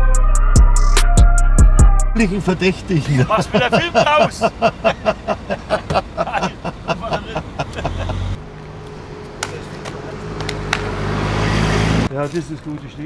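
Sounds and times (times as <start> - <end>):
music with a fast beat: 0.0 - 2.2
steady outdoor hum: 2.2 - 12.1
car engine rumble: 2.2 - 12.2.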